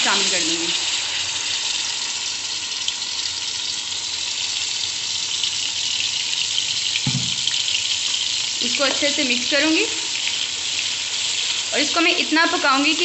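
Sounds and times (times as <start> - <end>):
paste sizzling in hot oil: 0.0 - 13.0
low thump: 7.1 - 7.5.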